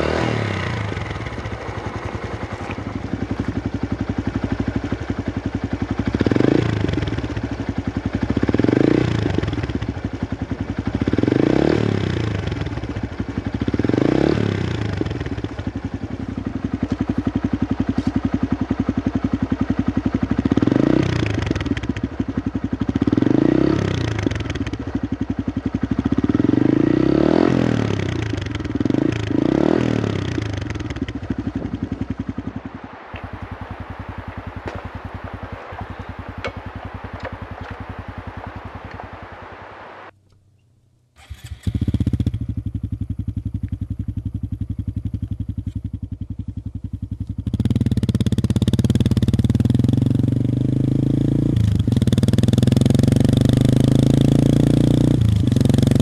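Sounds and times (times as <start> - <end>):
motorcycle engine idling and revving: 0.0 - 40.2, 41.2 - 56.0.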